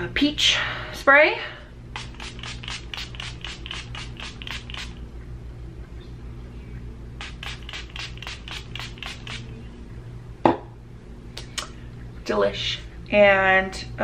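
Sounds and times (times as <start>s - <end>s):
steady low hum: 0.0s - 14.0s
mist bottle spraying: 1.9s - 5.0s, 7.2s - 9.5s.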